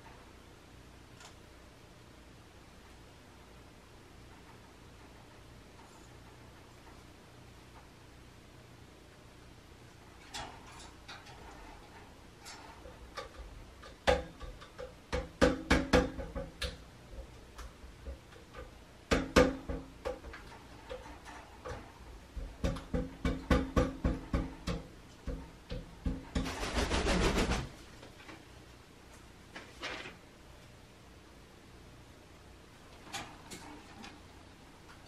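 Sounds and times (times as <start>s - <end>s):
flurry of wingbeats: 26.4s - 27.7s.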